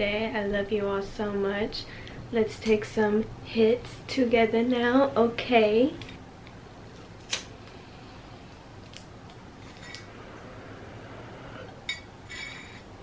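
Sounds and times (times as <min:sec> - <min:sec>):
glass clinking: 0:11.9 - 0:12.9.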